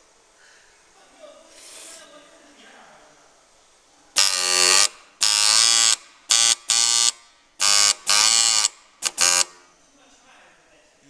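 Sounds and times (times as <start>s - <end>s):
marking machine stylus buzzing: 4.2s - 9.7s.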